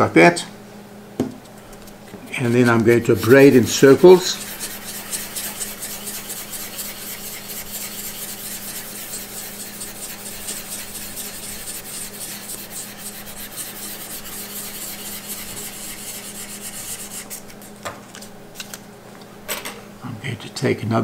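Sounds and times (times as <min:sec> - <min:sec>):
abrasive paper rubbing metal: 0:02.3 - 0:17.8.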